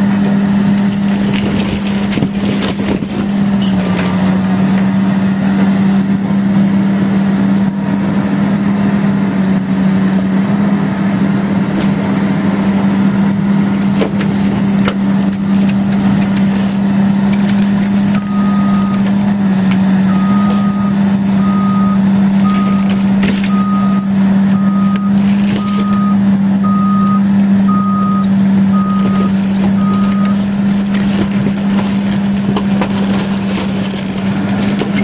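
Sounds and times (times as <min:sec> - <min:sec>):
crackling and crunching of hull: 0:00.0 - 0:05.1, 0:13.4 - 0:35.0
excavator diesel engine running: 0:00.0 - 0:35.0
reversing alarm beeping: 0:18.0 - 0:19.1, 0:20.0 - 0:30.4.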